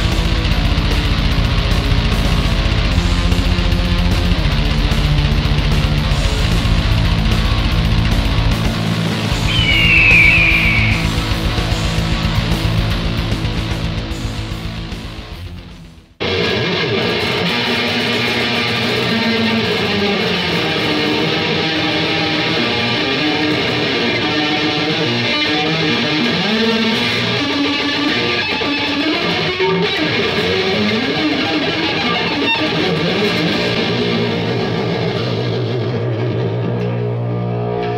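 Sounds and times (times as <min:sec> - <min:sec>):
electric guitar with bending notes: 0:09.4 - 0:11.2, 0:16.2 - 0:37.9.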